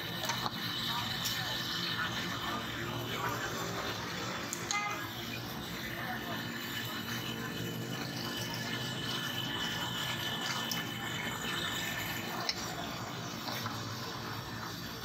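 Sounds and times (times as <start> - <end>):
oil sizzling in deep fryer: 0.0 - 15.0.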